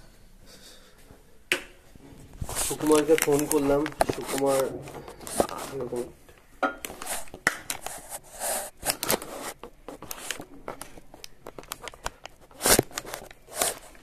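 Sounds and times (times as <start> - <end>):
phone handling rustles and scrapes: 2.3 - 6.0, 6.9 - 14.0.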